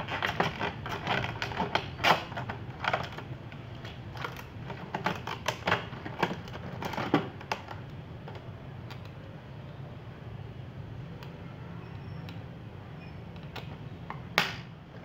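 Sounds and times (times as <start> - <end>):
plastic jug crackling: 0.0 - 7.7.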